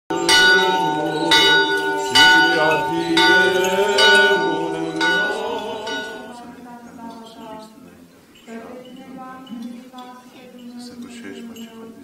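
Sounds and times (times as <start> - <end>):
church bell ringing: 0.1 - 6.6.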